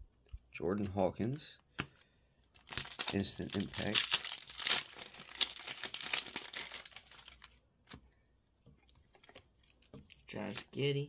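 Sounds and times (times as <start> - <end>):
foil wrapper tearing and crinkling: 2.5 - 7.6.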